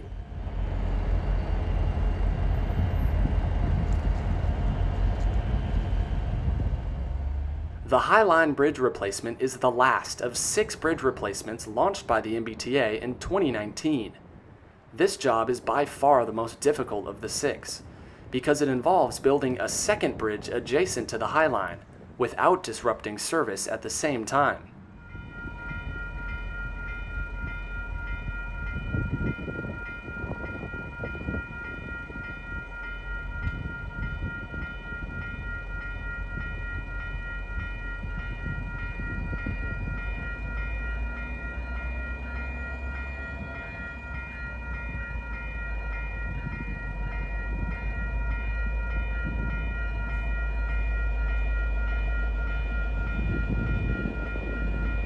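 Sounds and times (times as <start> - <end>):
diesel locomotive rumbling past: 0.0 - 13.0, 24.7 - 55.0
crossing warning bell ringing: 0.0 - 13.9, 23.9 - 55.0.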